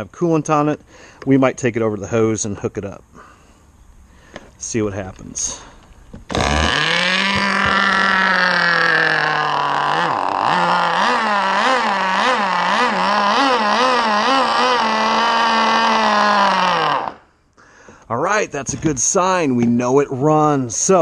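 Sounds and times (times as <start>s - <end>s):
small two-stroke engine buzzing: 6.3s - 17.3s.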